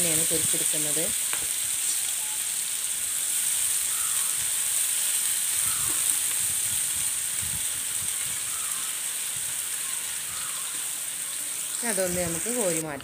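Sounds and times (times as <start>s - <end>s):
onions sizzling in a pan: 0.0s - 13.0s.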